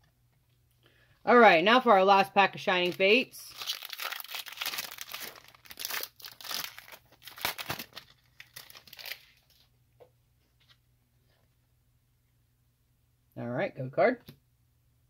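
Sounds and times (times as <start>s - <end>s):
foil wrapper crinkling and tearing: 2.7s - 9.7s.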